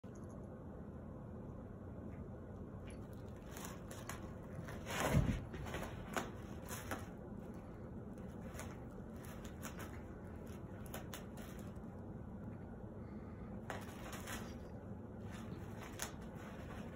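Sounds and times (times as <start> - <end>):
plastic bag crinkling: 13.6 - 16.9.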